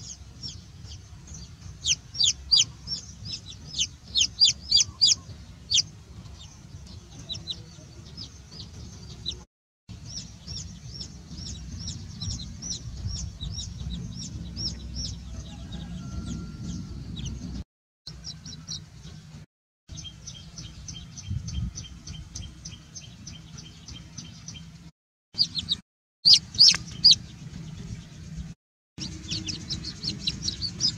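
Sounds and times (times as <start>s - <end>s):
low rumble: 0.0s - 17.6s
baby chicks peeping: 0.0s - 24.8s, 25.4s - 30.9s.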